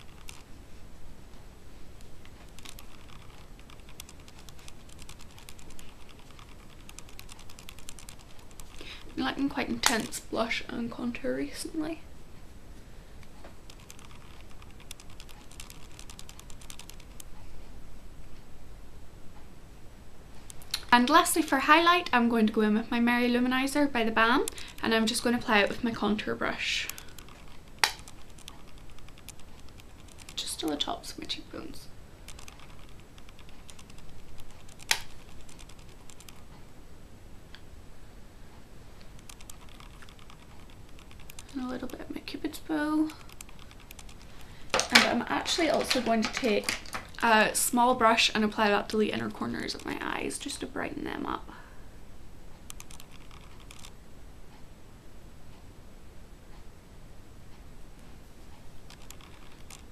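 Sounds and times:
makeup brush bristles clicking: 2.5s - 9.0s, 13.7s - 17.3s, 32.3s - 36.4s, 39.2s - 42.0s, 43.2s - 47.3s, 52.7s - 53.9s, 58.9s - 59.9s.

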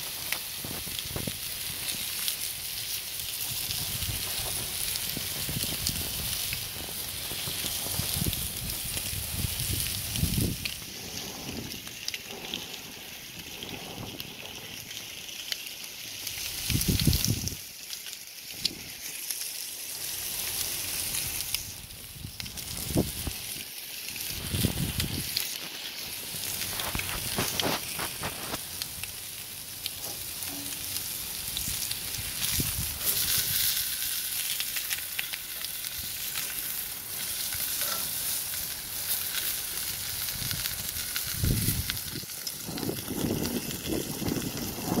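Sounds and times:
steaks sizzling on a grill pan: 0.0s - 45.0s.

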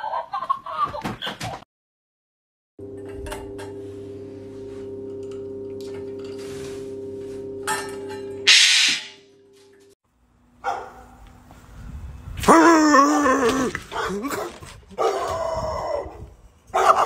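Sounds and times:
parrot squawking harshly: 8.5s - 9.2s.

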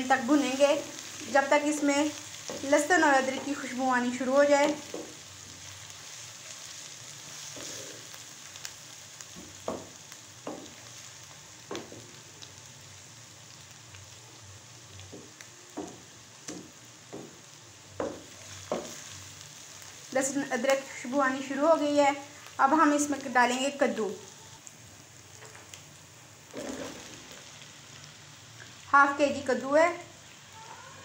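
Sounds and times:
onions sizzling in oil: 0.0s - 31.0s
spatula scraping pan: 26.5s - 27.4s.

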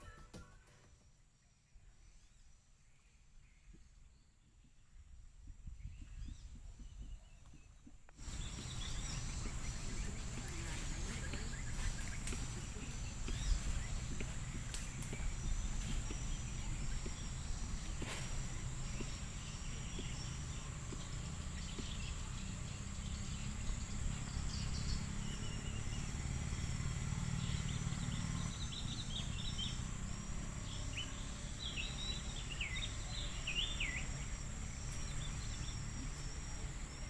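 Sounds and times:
crickets and insects chirping: 8.1s - 37.0s.

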